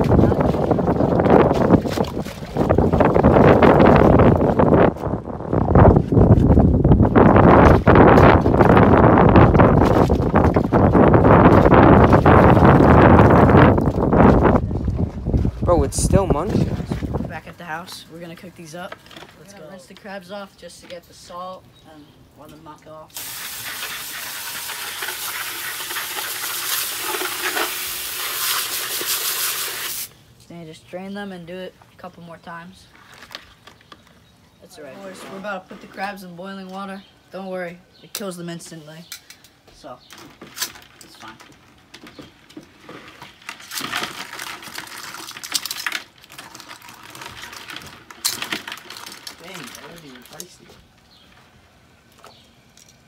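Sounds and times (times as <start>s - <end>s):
hose water spraying into bucket: 23.1s - 30.2s
crab shells clattering: 40.1s - 50.5s.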